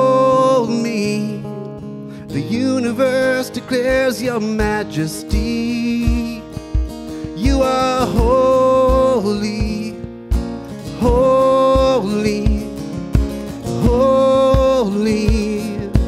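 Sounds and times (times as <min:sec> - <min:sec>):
man singing: 0:00.0 - 0:16.0
strummed acoustic guitar: 0:00.0 - 0:16.0
drums thumping steady beat: 0:04.6 - 0:16.0.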